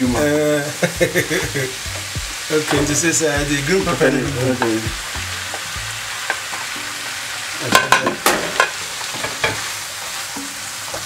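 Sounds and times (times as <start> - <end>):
vegetables and meat sizzling in pan: 0.0 - 11.0
spatula knocking and scraping pan: 1.9 - 6.6, 7.7 - 9.7.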